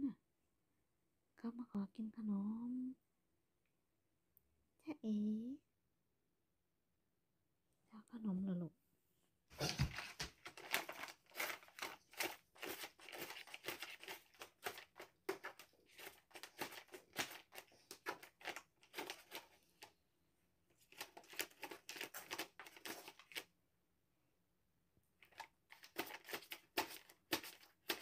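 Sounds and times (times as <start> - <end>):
cat scratching paper: 9.6 - 19.9, 20.8 - 23.5, 25.2 - 28.0
paper crinkling and rustling: 9.6 - 19.9, 20.8 - 23.5, 25.2 - 28.0.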